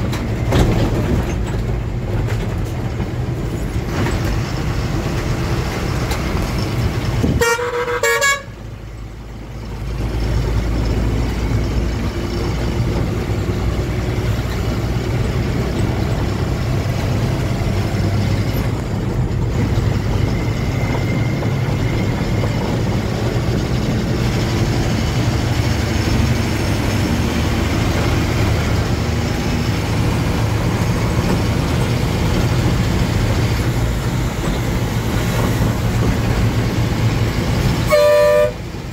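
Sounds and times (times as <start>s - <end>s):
truck engine and road noise: 0.0s - 38.9s
truck horn: 7.2s - 8.7s, 37.7s - 38.8s.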